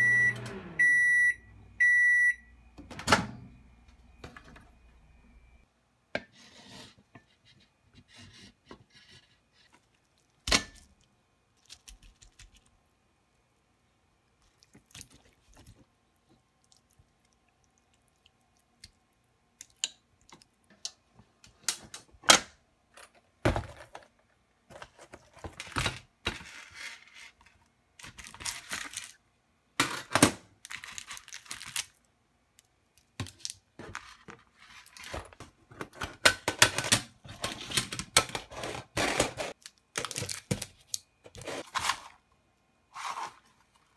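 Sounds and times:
rustling and scraping: 0:41.2 - 0:42.2, 0:42.9 - 0:43.9.

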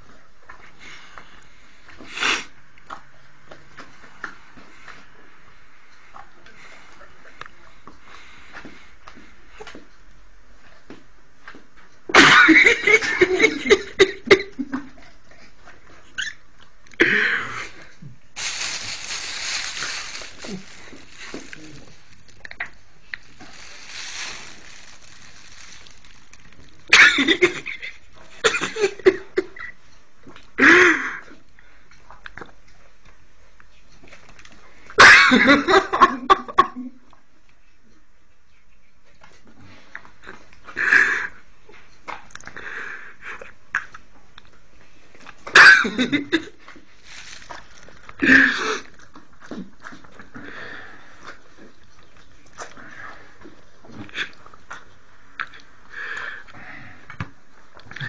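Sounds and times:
steady hiss: 0:18.3 - 0:27.7, 0:47.0 - 0:47.9.

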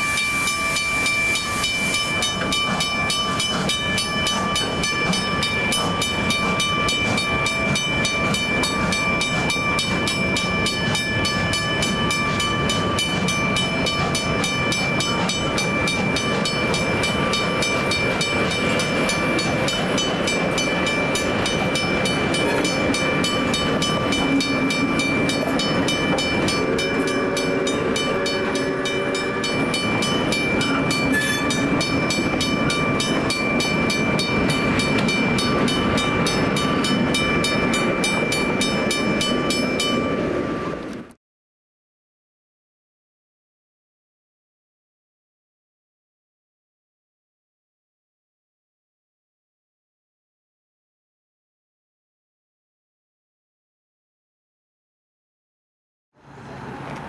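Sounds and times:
level-crossing bell ringing: 0:00.0 - 0:40.8
train wheels rumbling on rails: 0:00.0 - 0:41.2.

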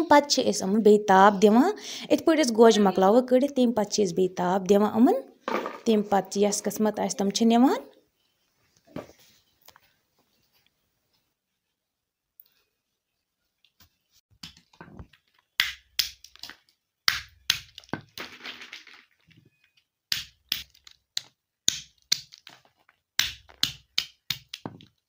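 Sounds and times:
hammer cracking walnuts: 0:15.5 - 0:19.0, 0:20.1 - 0:25.0
shells rustling: 0:17.8 - 0:19.8.

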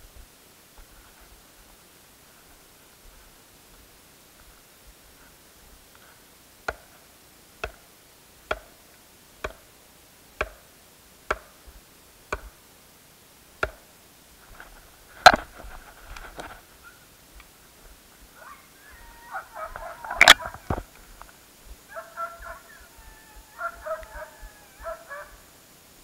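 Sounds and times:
rustling: 0:00.0 - 0:07.0, 0:14.3 - 0:25.6
knocking on hollow tree trunk: 0:07.6 - 0:07.8, 0:08.5 - 0:08.7, 0:09.4 - 0:09.6, 0:10.4 - 0:10.6, 0:11.3 - 0:11.6, 0:13.6 - 0:13.8.

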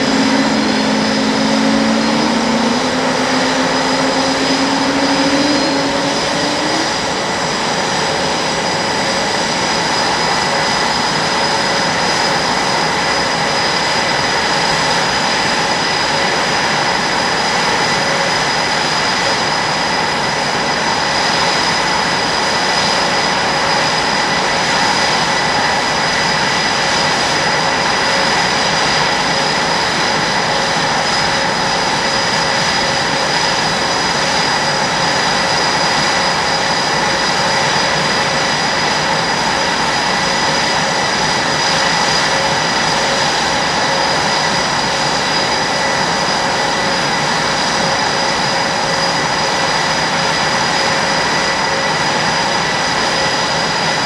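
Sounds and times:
high whining tones: 0:00.0 - 0:16.5
jet engines idling: 0:00.0 - 0:54.0.

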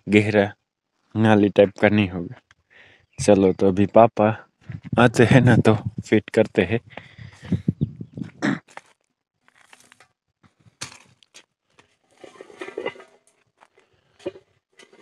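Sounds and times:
footsteps crunching on gravelly soil: 0:08.2 - 0:12.6.

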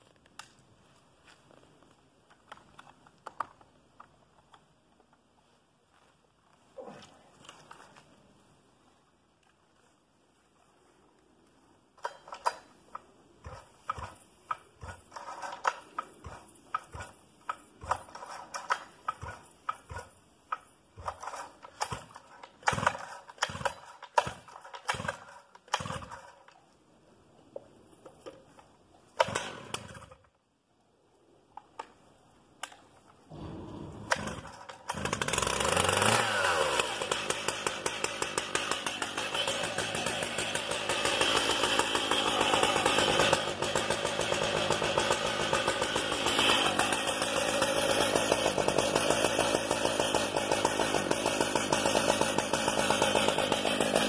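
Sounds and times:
chainsaw knocking while pull-started: 0:13.4 - 0:26.6, 0:29.2 - 0:30.2, 0:33.3 - 0:54.0
chainsaw engine running: 0:14.8 - 0:17.2, 0:21.0 - 0:26.3, 0:33.3 - 0:54.0.

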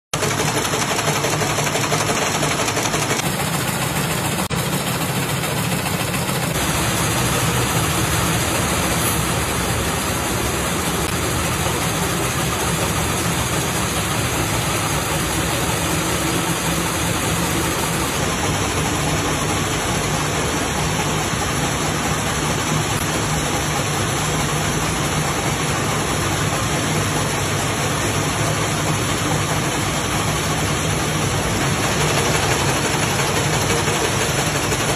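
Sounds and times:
machines mechanical din: 0:00.2 - 0:21.5.

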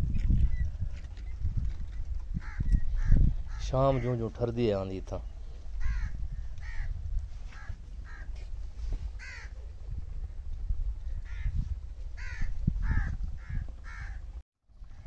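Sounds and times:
crows cawing: 0:02.4 - 0:04.2, 0:05.8 - 0:06.9, 0:07.5 - 0:08.4, 0:09.2 - 0:09.6, 0:11.2 - 0:11.6, 0:12.2 - 0:14.2.

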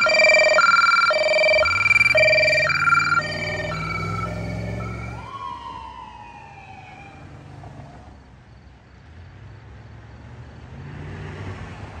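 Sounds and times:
police siren wailing: 0:00.0 - 0:07.6
low vehicle rumble: 0:00.0 - 0:08.2.

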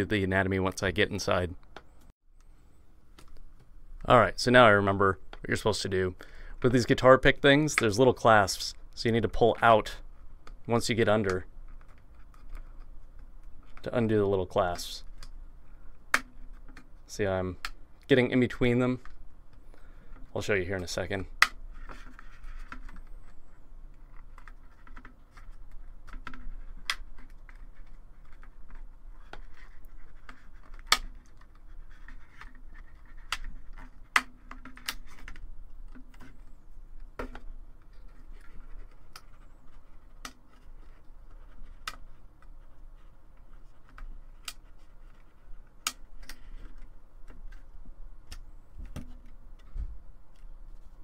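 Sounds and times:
scraping and handling noise: 0:06.6 - 0:51.0.

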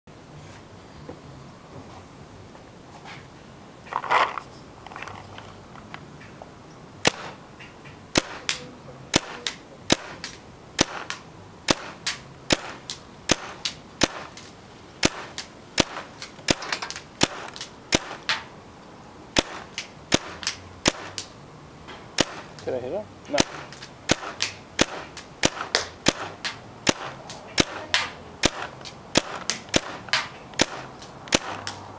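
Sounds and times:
paintball gun shots: 0:07.0 - 0:07.4, 0:08.1 - 0:18.5, 0:19.4 - 0:21.3, 0:22.2 - 0:22.7, 0:23.3 - 0:31.8.

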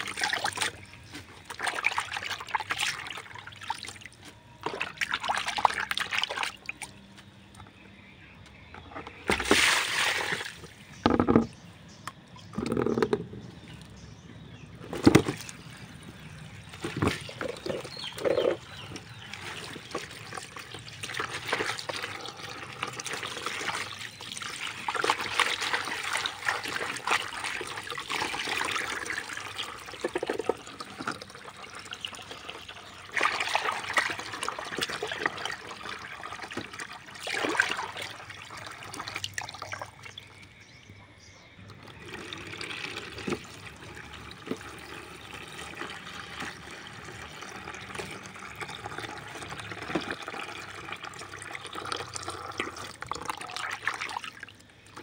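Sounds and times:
water pouring into basin: 0:00.0 - 0:06.9, 0:09.3 - 0:11.4, 0:15.1 - 0:40.4, 0:41.7 - 0:55.0
water sloshing and splashing: 0:00.0 - 0:07.8, 0:08.6 - 0:40.7, 0:41.6 - 0:55.0
plastic basin knocks: 0:11.0 - 0:11.6.

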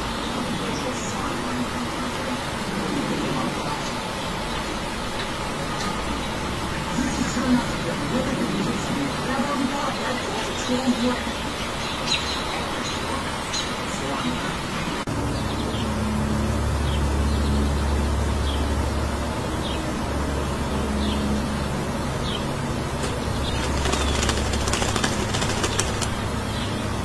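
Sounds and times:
wing flutters and rustling: 0:22.9 - 0:27.0.

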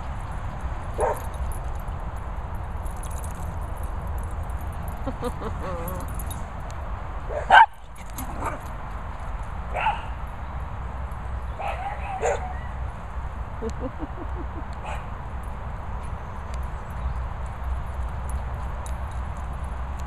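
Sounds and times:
dog barking: 0:01.0 - 0:01.2, 0:07.3 - 0:08.6, 0:09.7 - 0:10.2, 0:11.6 - 0:12.8, 0:14.8 - 0:15.1
dog whining: 0:05.5 - 0:06.2.

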